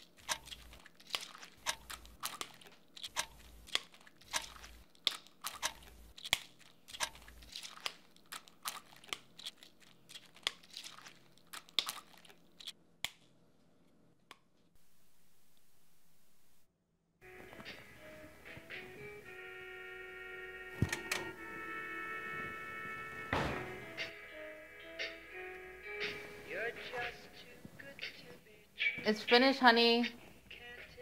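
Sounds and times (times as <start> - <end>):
crinkly tearing noises: 0.0 - 13.3
sharp knocks: 23.3 - 24.1.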